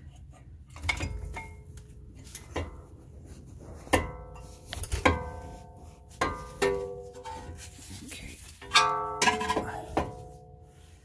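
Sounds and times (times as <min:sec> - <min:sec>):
metal knocks and clinks: 0:08.6 - 0:10.2.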